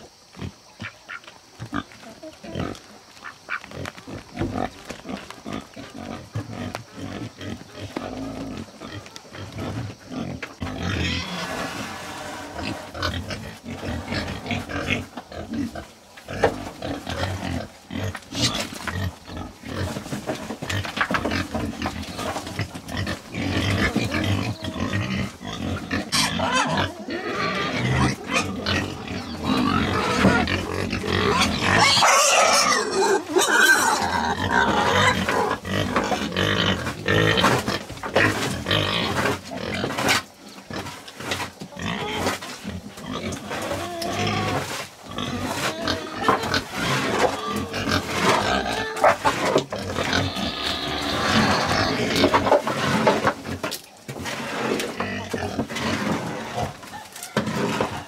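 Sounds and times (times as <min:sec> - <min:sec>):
pigs grunting and squealing: 0:00.0 - 0:58.0.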